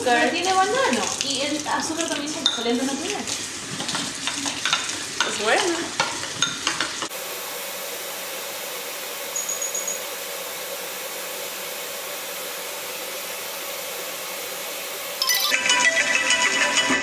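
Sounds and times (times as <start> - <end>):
tap running water: 0.0 - 7.2.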